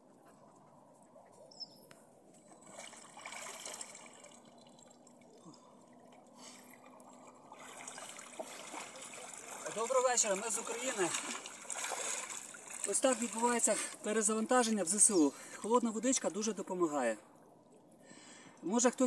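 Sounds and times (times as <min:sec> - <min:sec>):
wading through water: 0:00.4 - 0:16.5
water trickling and dripping: 0:02.3 - 0:16.5.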